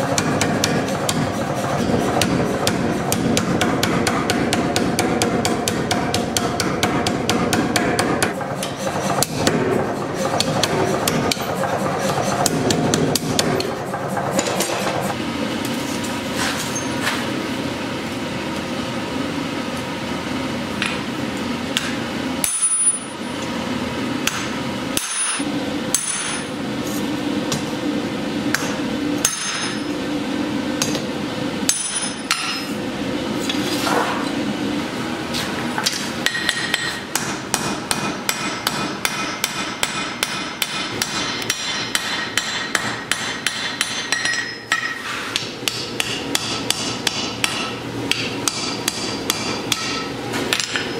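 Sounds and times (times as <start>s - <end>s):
hammer striking steel on anvil: 0.0s - 14.9s, 21.8s - 23.3s, 24.2s - 27.6s, 28.5s - 30.0s, 31.7s - 32.7s, 35.8s - 50.9s.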